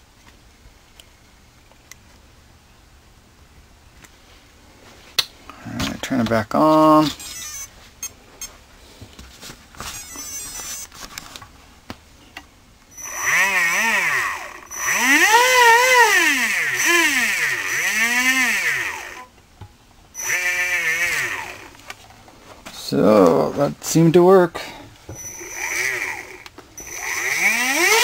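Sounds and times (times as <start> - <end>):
electric motor whine: 13.0 - 19.3, 20.2 - 21.8, 25.2 - 28.0.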